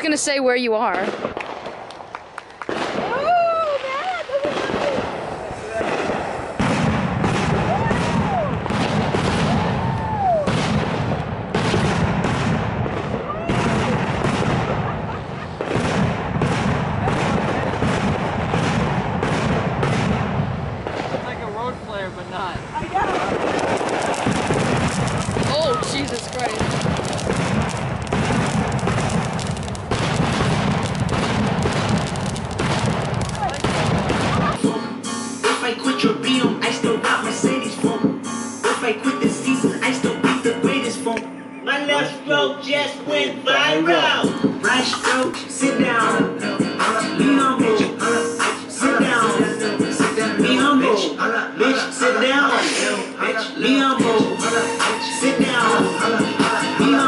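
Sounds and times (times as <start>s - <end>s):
fireworks crackling pops: 0.0s - 34.8s, 44.2s - 50.6s, 54.0s - 57.0s
fireworks hissing: 2.7s - 41.1s, 43.6s - 51.1s, 51.8s - 53.2s, 53.8s - 57.0s
rising and falling whistle: 9.8s - 10.5s.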